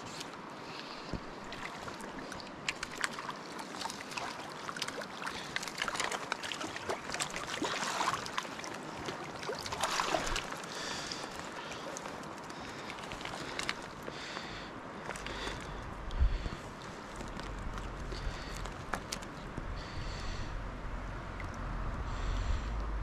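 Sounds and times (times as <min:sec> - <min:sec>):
water splashing and sloshing: 0:00.0 - 0:22.9
sharp little splashes: 0:01.4 - 0:13.9.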